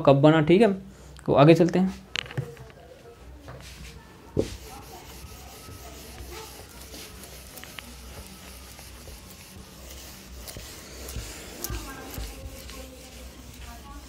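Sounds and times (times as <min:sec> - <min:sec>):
whiteboard being wiped: 0:03.5 - 0:14.0.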